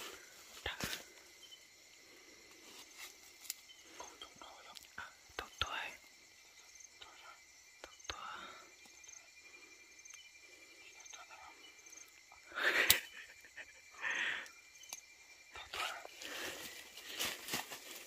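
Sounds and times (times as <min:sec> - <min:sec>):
rustling leaves and clothing: 0:00.0 - 0:06.8, 0:15.4 - 0:18.0
night insects chirping: 0:00.0 - 0:18.0.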